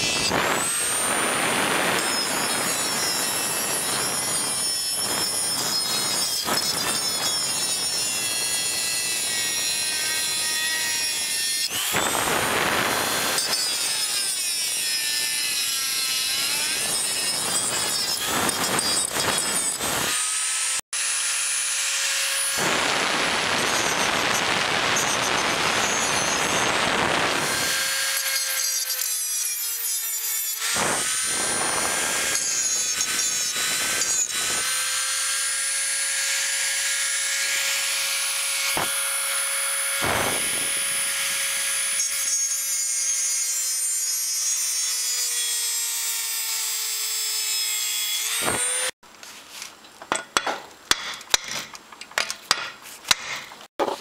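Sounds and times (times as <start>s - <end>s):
tool grinding against metal: 0.0s - 26.7s
power tool high whine: 0.0s - 29.5s, 30.3s - 45.6s.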